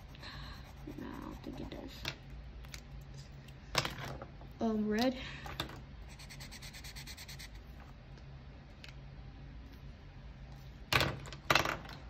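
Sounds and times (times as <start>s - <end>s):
marker scribbling on paper: 0.0s - 2.0s, 6.1s - 7.6s.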